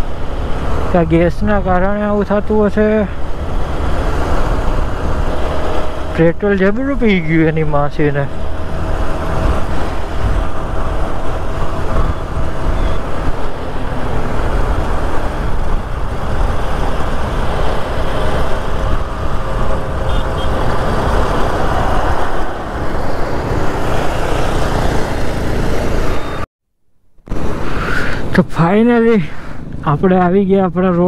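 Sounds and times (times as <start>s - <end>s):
motorcycle engine: 0.0s - 26.5s
road traffic: 0.0s - 31.0s
wind rush on microphone: 3.2s - 6.1s, 8.3s - 26.4s.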